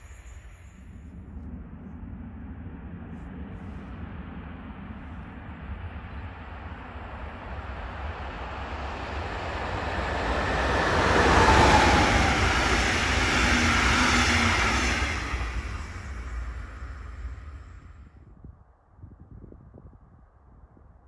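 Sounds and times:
train passing wheel noise: 4.4 - 18.2.

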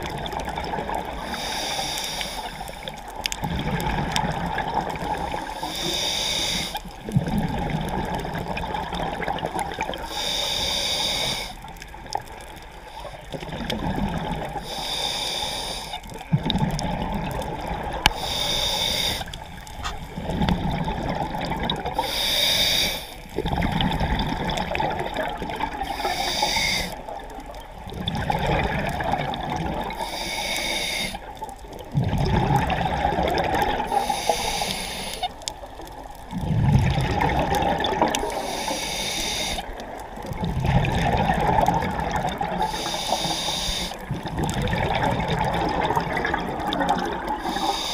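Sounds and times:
diver breathing through regulator: 1.2 - 2.8, 5.5 - 6.8, 10.0 - 11.6, 14.6 - 16.1, 18.0 - 20.0, 21.9 - 23.2, 25.8 - 27.0, 29.9 - 31.3, 33.8 - 35.4, 38.2 - 39.8, 42.6 - 44.1, 47.4 - 47.9.

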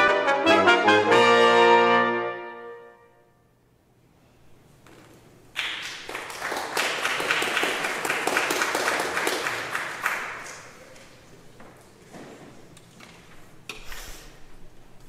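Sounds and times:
audience applauding: 5.6 - 11.2.

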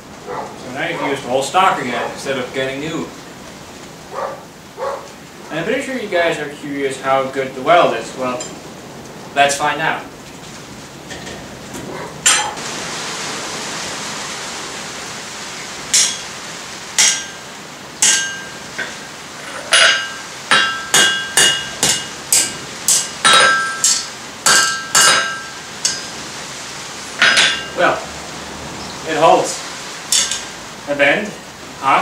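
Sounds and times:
hammer striking steel on anvil: 12.2 - 12.6, 15.9 - 16.3, 17.0 - 17.4, 18.0 - 19.0, 19.7 - 26.1, 27.2 - 27.8, 30.1 - 30.4
sharp metal clank: 12.2 - 12.6, 15.9 - 16.3, 17.0 - 17.4, 18.0 - 19.0, 19.7 - 26.2, 30.1 - 30.5.

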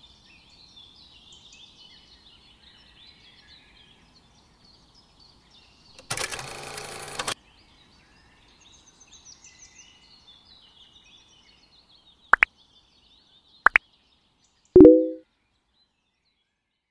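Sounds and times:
bell ding: 14.8 - 15.2
bird chirps: 14.8 - 15.2
mouse click effects: 14.8 - 15.2.

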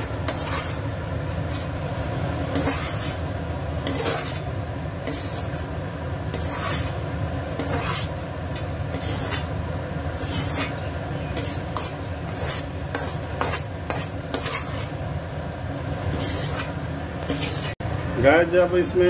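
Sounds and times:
metal spatula scraping pan: 0.0 - 1.8, 2.5 - 7.0, 7.6 - 9.6, 10.2 - 15.0, 16.1 - 17.8.

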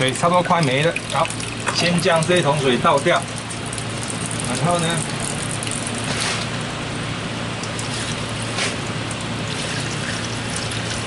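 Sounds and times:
water pouring into a drain: 0.0 - 6.6, 7.6 - 11.0.

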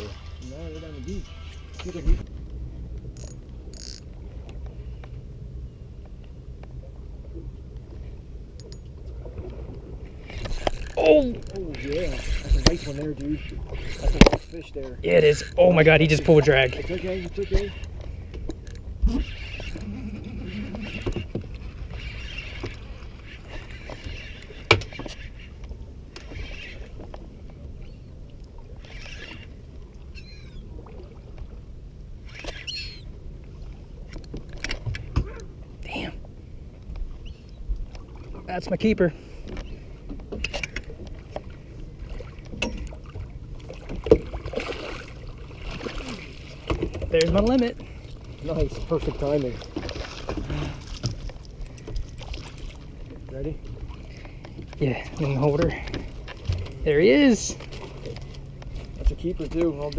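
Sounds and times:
wind and water rumble: 0.0 - 59.9
fishing reel being cranked: 3.2 - 4.1, 10.2 - 25.4, 26.1 - 27.0, 28.8 - 29.6, 32.2 - 33.0.

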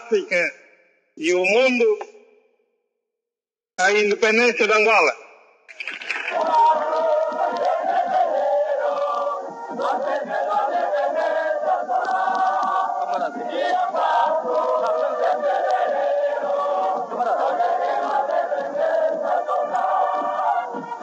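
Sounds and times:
crowd chanting and cheering: 6.2 - 21.0.

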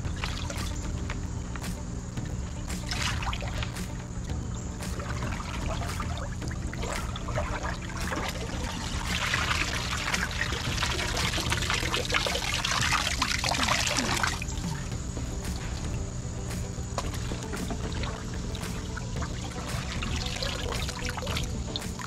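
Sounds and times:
water splashing in a tub: 0.0 - 1.7, 2.6 - 22.0
water trickling off a net: 4.8 - 14.7, 17.0 - 22.0.

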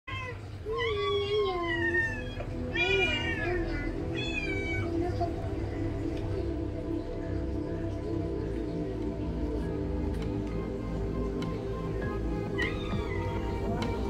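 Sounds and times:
cat meowing: 0.1 - 5.0, 12.5 - 13.8
soft background music: 0.1 - 14.0.

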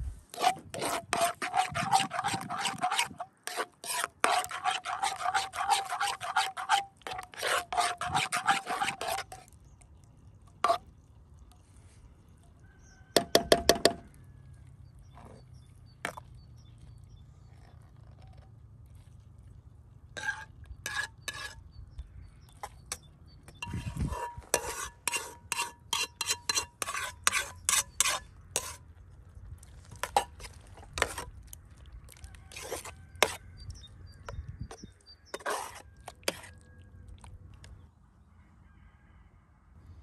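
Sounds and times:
metal skimmer scraping pan: 0.3 - 9.4, 20.2 - 21.6, 23.6 - 28.8, 29.9 - 31.3, 35.3 - 36.6.

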